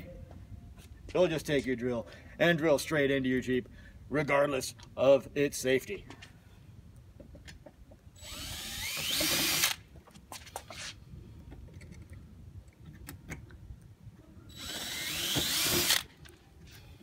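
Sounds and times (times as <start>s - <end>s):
cordless drill boring into metal: 8.2s - 9.8s, 14.5s - 16.1s.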